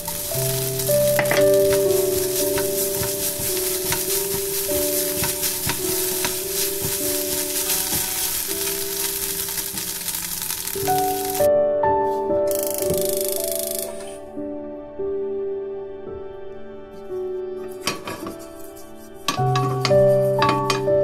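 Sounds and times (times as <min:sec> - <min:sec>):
spatula scraping a wok: 0:00.0 - 0:11.4, 0:17.7 - 0:21.0
rice sizzling in a wok: 0:00.0 - 0:11.5, 0:19.2 - 0:21.0
soft background music: 0:00.0 - 0:21.0.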